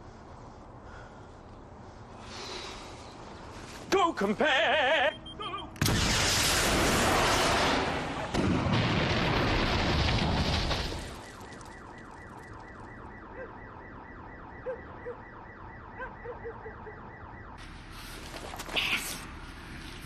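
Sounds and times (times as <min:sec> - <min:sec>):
car alarm: 0:05.1 - 0:05.8, 0:11.0 - 0:17.6
long explosion: 0:05.8 - 0:11.3.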